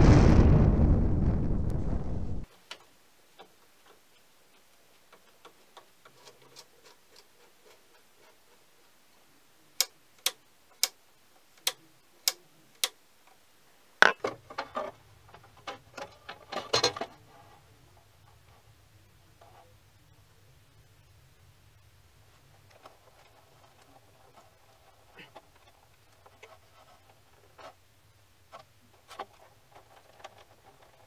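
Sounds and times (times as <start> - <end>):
clattering and rustling of wiring: 2.5 - 8.9, 14.0 - 19.8, 22.2 - 27.8, 28.4 - 31.0.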